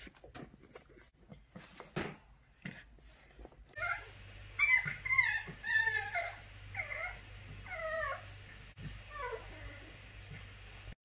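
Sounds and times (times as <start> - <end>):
puppy whining and yelping: 3.7 - 10.0.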